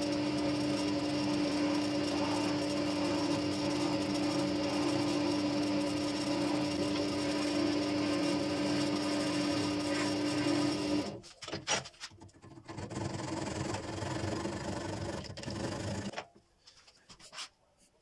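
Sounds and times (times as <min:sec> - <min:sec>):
chisel cutting spinning wood: 0:00.0 - 0:11.2, 0:12.4 - 0:16.2
wood lathe humming: 0:00.0 - 0:11.2.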